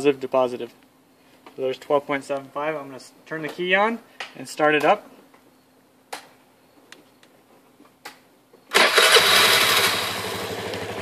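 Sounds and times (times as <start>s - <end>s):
scooter engine starting and idling: 8.7s - 11.0s.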